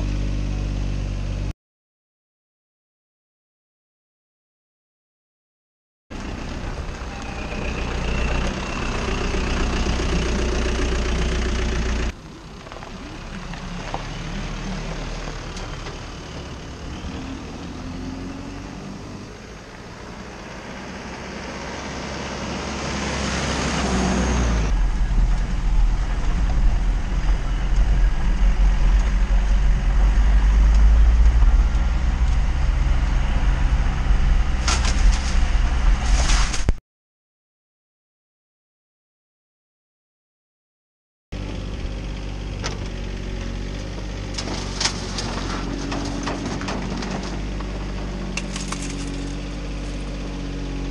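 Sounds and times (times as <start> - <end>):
truck engine running: 6.1 - 36.2, 41.4 - 50.9.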